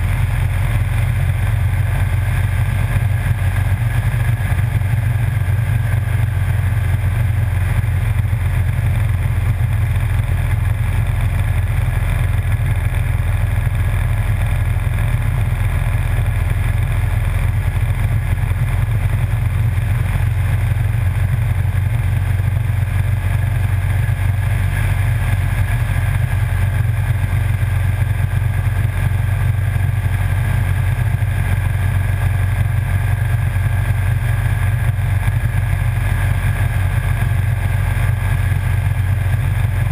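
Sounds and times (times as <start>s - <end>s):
road noise: 0.0s - 8.8s
motorcycle engine cruising: 0.0s - 39.9s.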